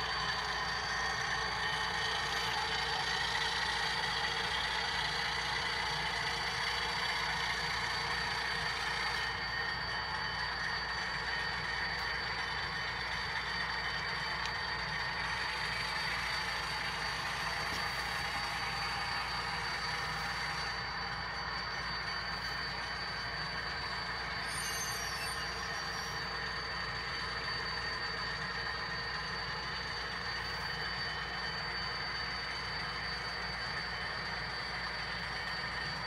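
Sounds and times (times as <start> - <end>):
model locomotive engine running: 0.0 - 36.0
thin high whine: 0.0 - 36.0
brief high squeak: 24.4 - 26.2.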